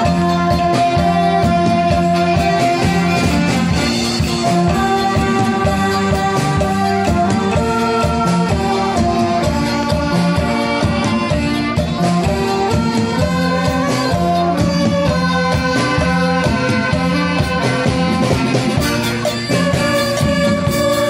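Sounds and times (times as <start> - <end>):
saxophone ensemble playing: 0.0 - 21.0
steady beat: 0.0 - 21.0.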